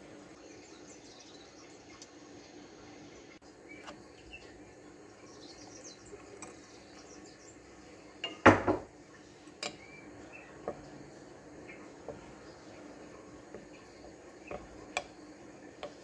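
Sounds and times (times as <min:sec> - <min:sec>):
metal spoon clinking against glass: 0:09.6 - 0:09.8.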